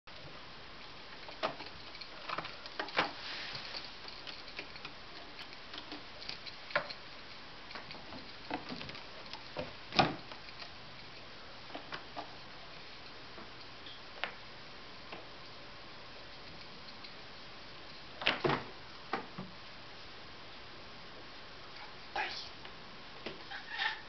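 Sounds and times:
background hiss: 0:00.1 - 0:24.0.

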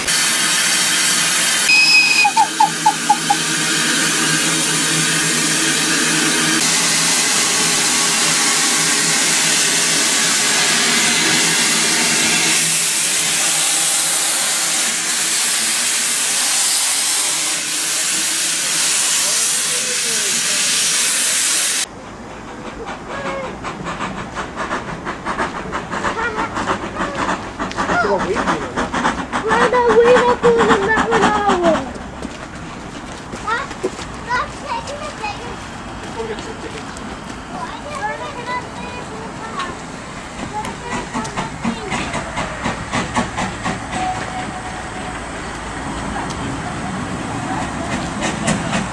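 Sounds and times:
steam hissing: 0:00.0 - 0:31.9, 0:34.2 - 0:48.9
locomotive chuffing: 0:00.0 - 0:48.9
steam whistle: 0:01.7 - 0:03.6.

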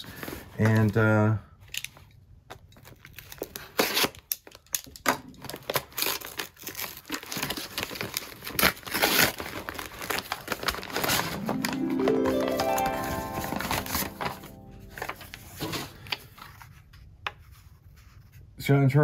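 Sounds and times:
paper wrapping crinkling and tearing: 0:05.4 - 0:16.8
rising musical tone: 0:11.2 - 0:15.8.

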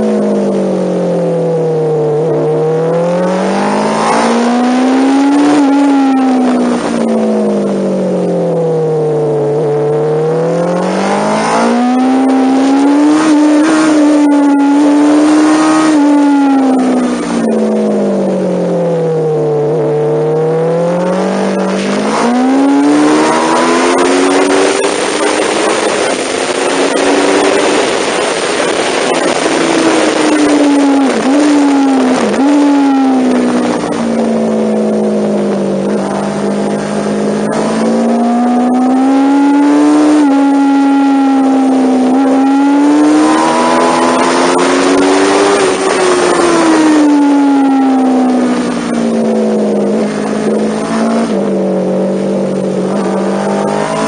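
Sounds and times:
motorcycle engine revving: 0:00.0 - 0:54.0
loud wind rush: 0:20.7 - 0:54.0.

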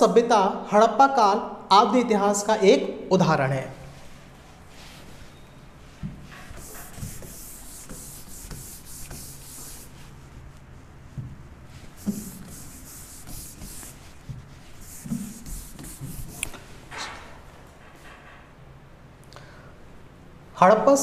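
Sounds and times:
palm rubbing on glass screen: 0:04.1 - 0:10.5, 0:11.1 - 0:16.6.

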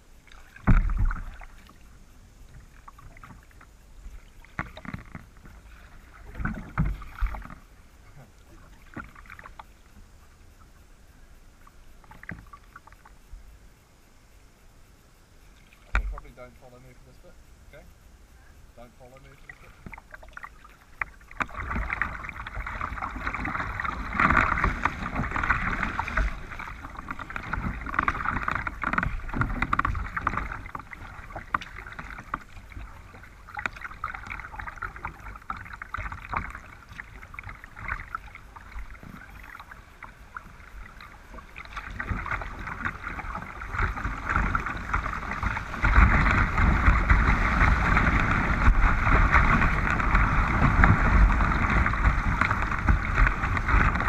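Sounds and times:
river water rushing and splashing: 0:19.7 - 0:54.0.

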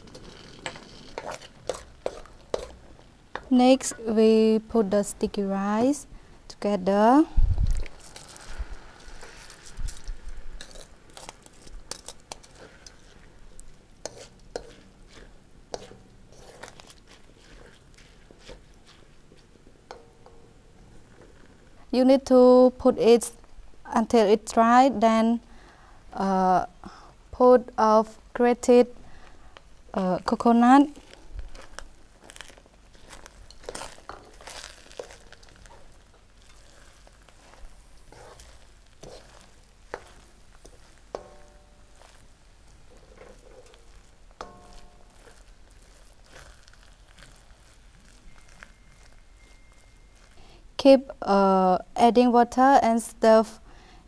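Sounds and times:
spoon scraping wet rice: 0:00.0 - 0:04.0, 0:07.8 - 0:19.6, 0:30.9 - 0:50.5.

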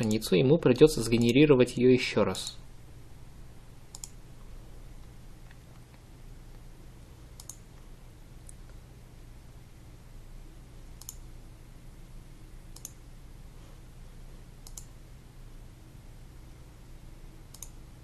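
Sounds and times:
low steady hum: 0:00.0 - 0:18.0
computer mouse clicks: 0:03.9 - 0:04.2, 0:07.3 - 0:08.8, 0:11.0 - 0:11.3, 0:12.7 - 0:13.0, 0:14.6 - 0:15.0, 0:17.5 - 0:17.8.

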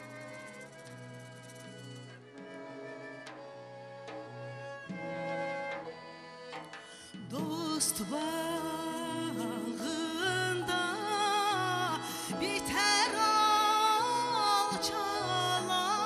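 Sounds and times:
bowed folk strings: 0:00.0 - 0:16.0
woman singing ornamented melody: 0:07.2 - 0:16.0.

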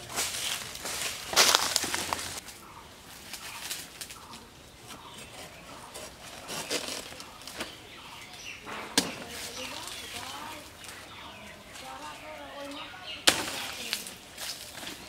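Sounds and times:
plant leaves shaken: 0:00.0 - 0:02.5, 0:09.2 - 0:11.0
footsteps through dry leaves: 0:00.0 - 0:08.5, 0:09.1 - 0:15.0
faint bird calls: 0:01.3 - 0:15.0.

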